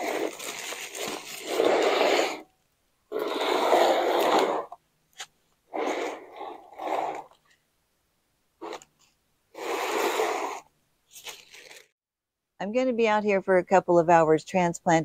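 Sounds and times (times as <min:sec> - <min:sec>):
plastic sheeting rustling: 0:00.0 - 0:02.4
plastic trays scraping on concrete: 0:00.0 - 0:02.5, 0:03.1 - 0:07.4, 0:09.6 - 0:10.7.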